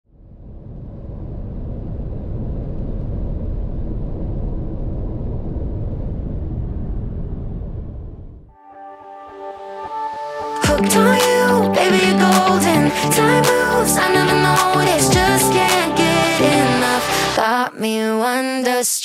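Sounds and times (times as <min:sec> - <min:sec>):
music: 0:08.5 - 0:18.8.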